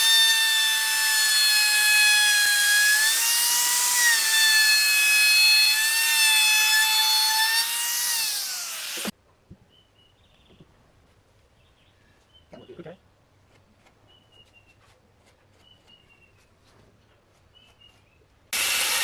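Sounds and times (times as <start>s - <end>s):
router bit cutting wood: 0.0s - 9.1s, 18.6s - 19.0s
router motor whine: 0.0s - 9.1s, 18.6s - 19.0s.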